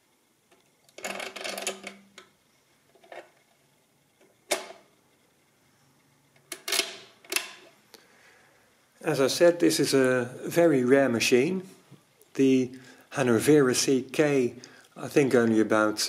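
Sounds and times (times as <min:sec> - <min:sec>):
mechanical calculator clattering: 0:00.9 - 0:02.2.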